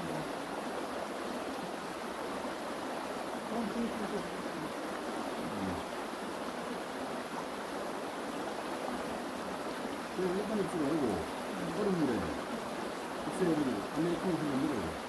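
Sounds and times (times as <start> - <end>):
stream water running: 0.0 - 15.0
faint voices: 5.4 - 5.9, 10.2 - 12.4, 13.3 - 15.0.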